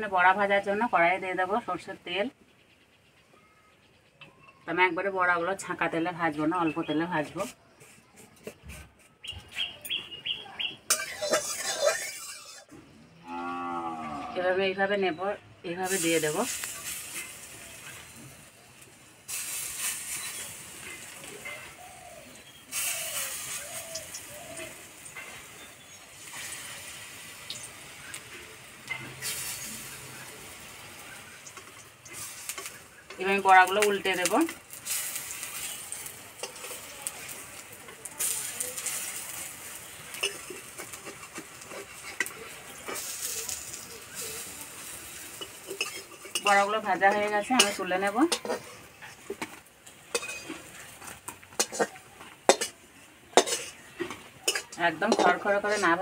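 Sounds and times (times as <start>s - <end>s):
batter frying in hot oil: 10.9s - 12.7s, 15.7s - 56.0s
metal spatula scraping a pan: 10.9s - 12.7s, 19.3s - 21.8s, 22.7s - 27.6s, 28.4s - 56.0s.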